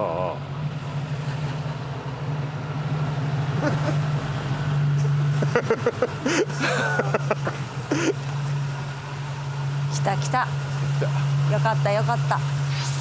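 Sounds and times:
van engine droning: 0.0 - 13.0.

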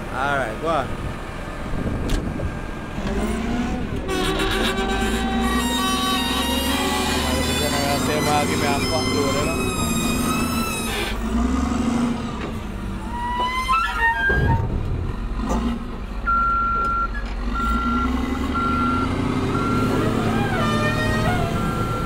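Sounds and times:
diesel engine under load: 0.0 - 22.0
reversing alarm beeps: 16.2 - 20.2, 21.6 - 22.0.

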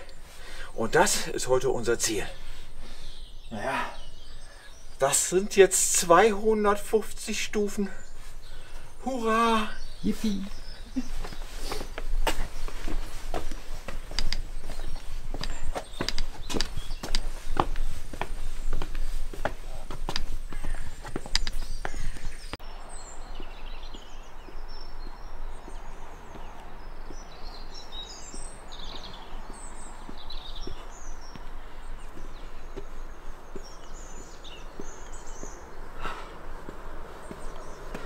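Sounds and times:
outdoor hush: 0.0 - 38.0
small birds chirping: 0.0 - 38.0
faint footsteps: 9.9 - 22.6, 23.6 - 38.0.

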